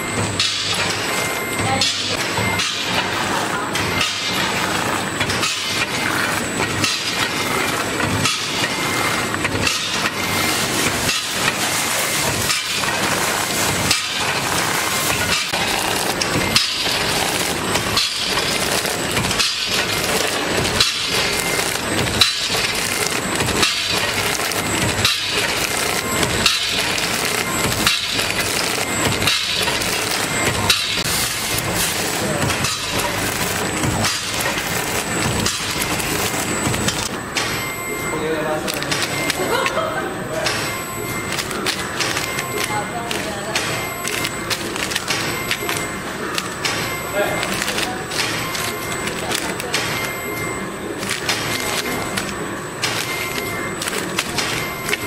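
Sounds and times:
packing machine clattering: 0:00.0 - 0:55.0.

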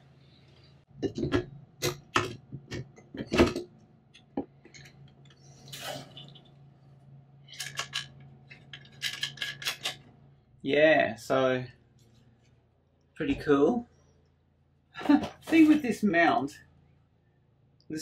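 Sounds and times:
faint low hum: 0:00.0 - 0:18.0.

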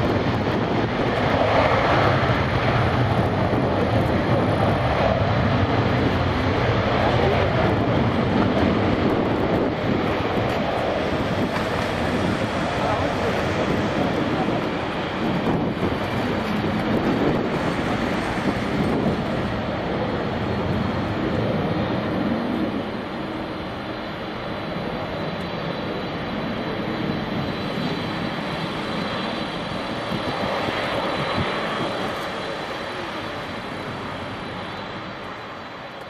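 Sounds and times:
jet engines roaring: 0:00.0 - 0:36.0.

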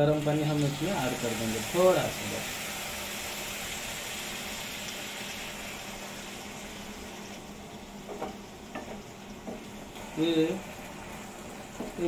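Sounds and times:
pasta sizzling in a hot pan: 0:00.0 - 0:12.0
wooden spatula knocking on pan: 0:08.0 - 0:09.7, 0:11.7 - 0:12.0.

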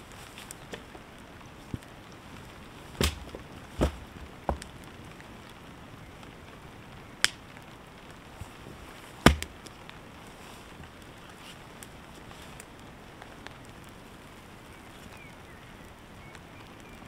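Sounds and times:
wooden branches snapping: 0:00.0 - 0:05.6, 0:07.2 - 0:07.7, 0:08.4 - 0:10.0.

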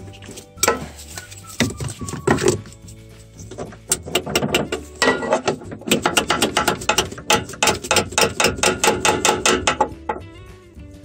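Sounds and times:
ratchet wrench clicking: 0:05.5 - 0:09.9.

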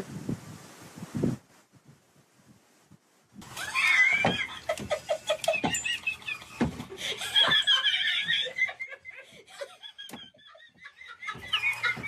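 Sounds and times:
person laughing: 0:03.4 - 0:12.0.

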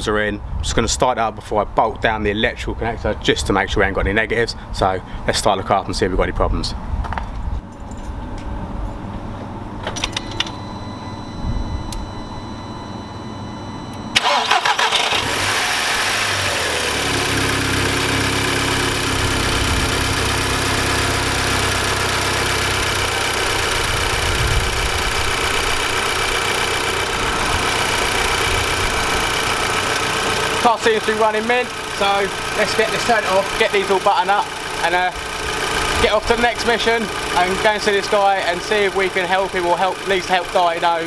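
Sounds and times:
car engine starting and idling: 0:13.3 - 0:41.0.

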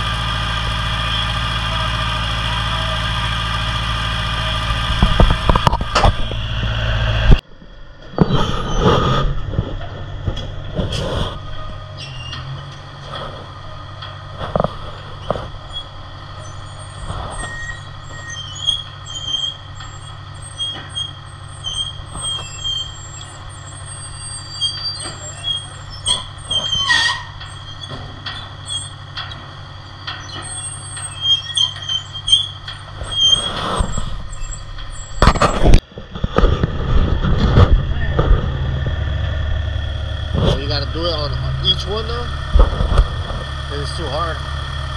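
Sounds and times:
construction machinery engine drone: 0:00.0 - 0:44.9
high squeaks: 0:11.4 - 0:12.8, 0:14.9 - 0:35.8.

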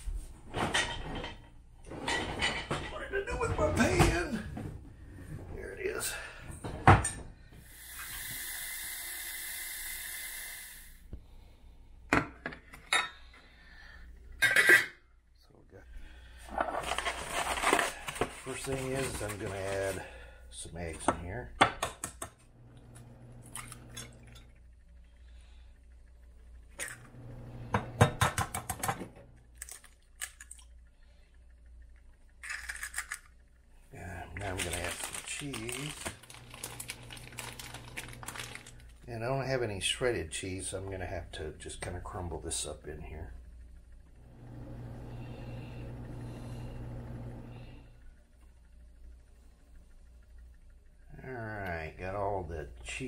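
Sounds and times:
eggs cracking against glass: 0:29.5 - 0:30.8.

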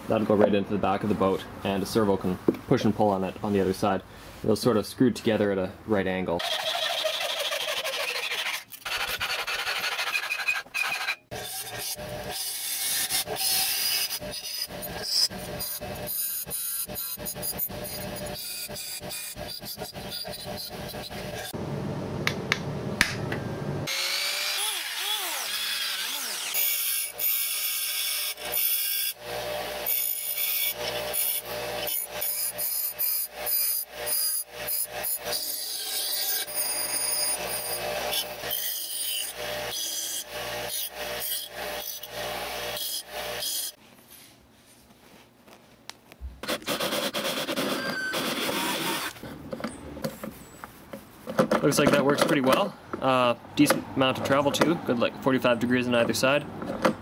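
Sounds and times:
bench grinder grinding steel rod: 0:06.4 - 0:21.6, 0:23.9 - 0:43.8
hand sawing: 0:06.4 - 0:21.6.

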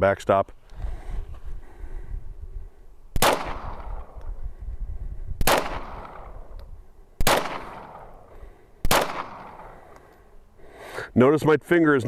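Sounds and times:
pistol shots echoing: 0:03.2 - 0:04.2, 0:05.4 - 0:06.5, 0:07.2 - 0:09.9.

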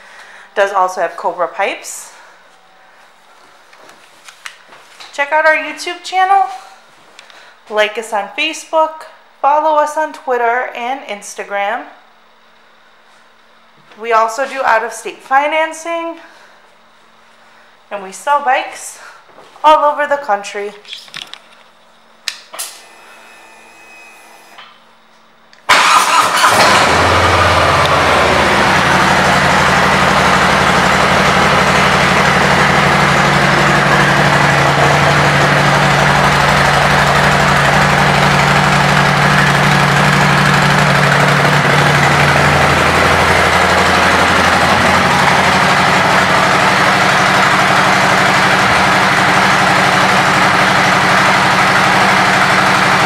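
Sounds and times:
motorcycle engine idling loudly: 0:25.7 - 0:53.0
motorcycle engine starting: 0:25.7 - 0:53.0.

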